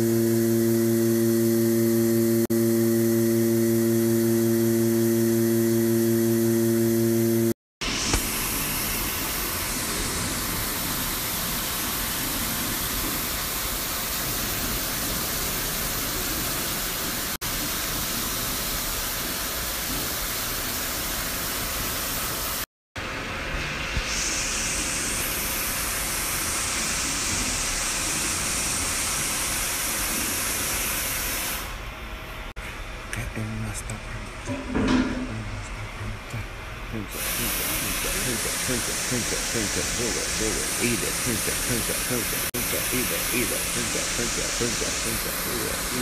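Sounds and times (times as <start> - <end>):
pressure washer spray hissing: 37.1 - 46.0.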